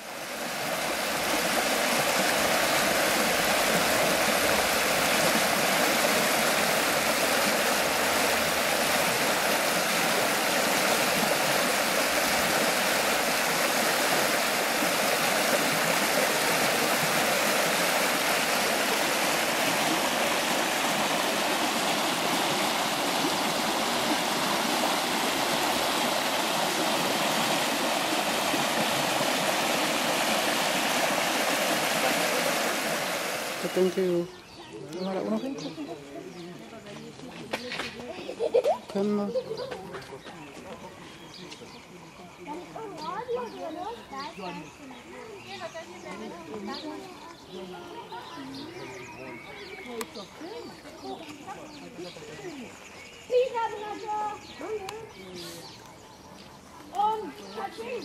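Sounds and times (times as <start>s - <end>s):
flowing water rushing: 0.0s - 34.4s.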